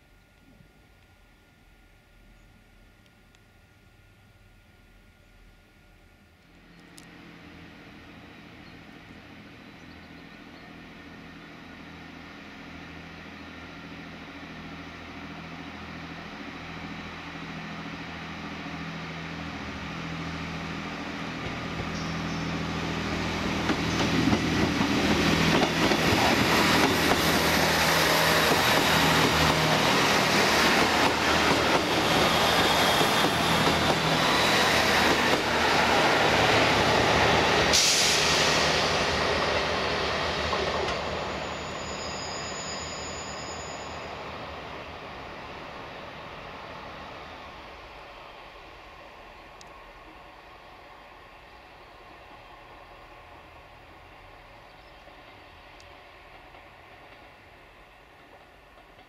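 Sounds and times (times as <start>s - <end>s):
high wheel squeal: 40.9s - 44.3s.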